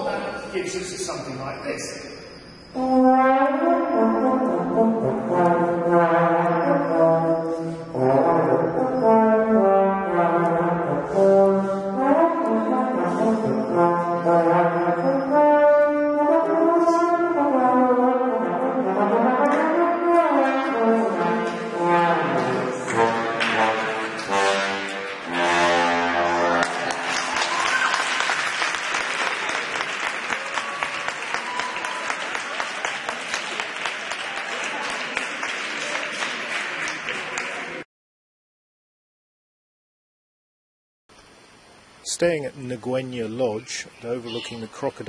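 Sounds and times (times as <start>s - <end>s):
trombone playing: 2.8s - 27.6s.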